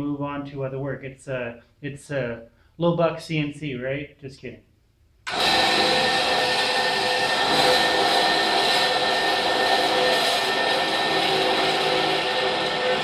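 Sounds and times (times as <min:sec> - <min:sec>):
bandsaw cutting metal: 0:05.3 - 0:13.0.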